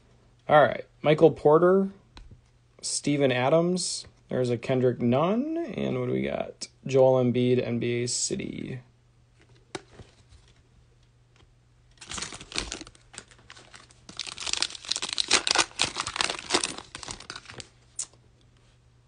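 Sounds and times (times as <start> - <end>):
foil wrapper crinkling and tearing: 12.0 - 17.8.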